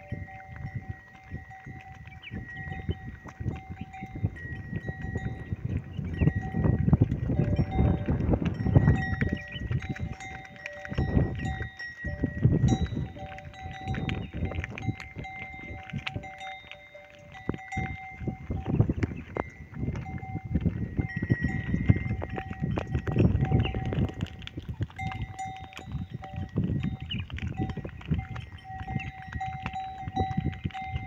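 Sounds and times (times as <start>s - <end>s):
cattle bells jangling: 0.0s - 31.0s.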